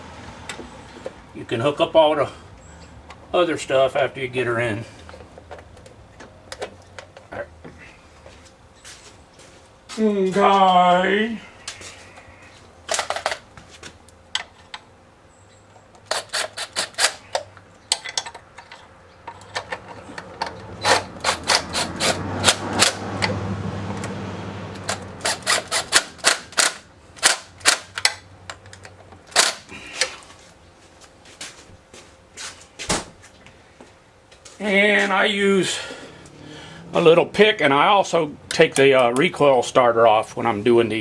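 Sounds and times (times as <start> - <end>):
socket ratchet clicking: 19.3 - 23.3, 24.8 - 29.6.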